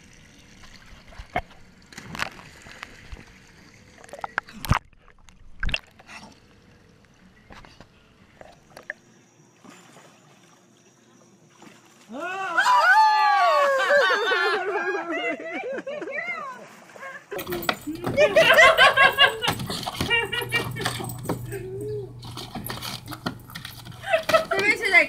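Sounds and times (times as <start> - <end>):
spillway water trickling: 0.0 - 5.1.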